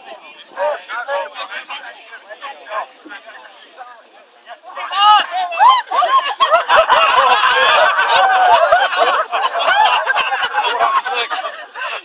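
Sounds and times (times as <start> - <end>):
people laughing and shouting: 4.3 - 12.0.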